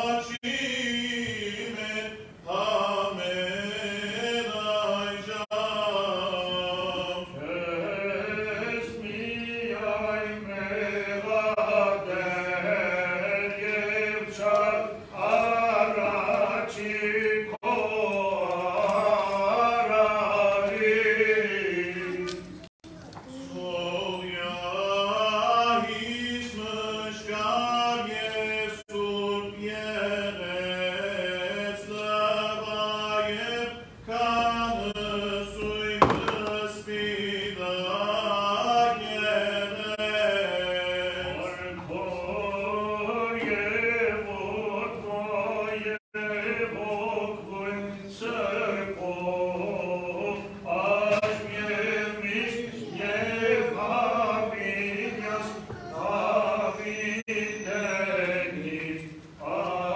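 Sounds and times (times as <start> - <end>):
sharp knock: 36.0 - 36.7.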